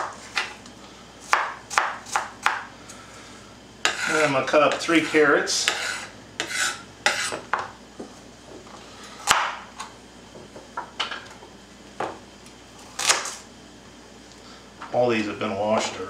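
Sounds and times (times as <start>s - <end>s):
knife chopping on wooden board: 1.3s - 2.7s, 3.8s - 4.9s, 5.6s - 7.7s, 9.2s - 9.7s.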